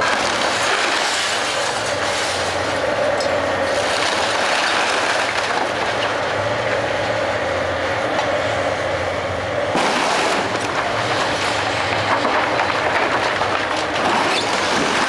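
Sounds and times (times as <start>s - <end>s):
debris clattering: 0.0s - 2.6s, 3.2s - 6.2s, 9.7s - 15.0s
excavator running: 0.0s - 15.0s
timber cracking: 9.7s - 15.0s.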